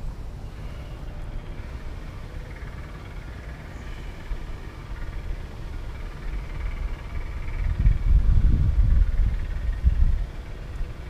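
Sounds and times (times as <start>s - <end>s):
wind on microphone: 6.4s - 11.0s.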